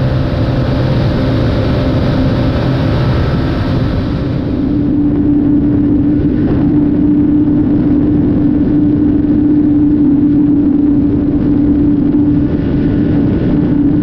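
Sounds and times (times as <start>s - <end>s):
motorcycle engine at high revs: 0.0s - 5.2s
wind rushing: 0.0s - 14.0s.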